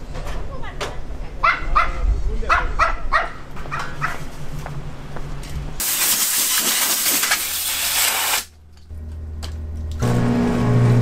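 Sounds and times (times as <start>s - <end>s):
compressed air blow gun hissing: 5.8s - 8.5s.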